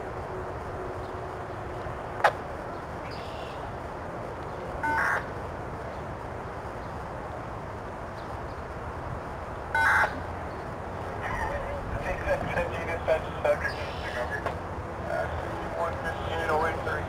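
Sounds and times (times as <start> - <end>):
crow cawing: 4.8 - 5.3, 9.8 - 10.2.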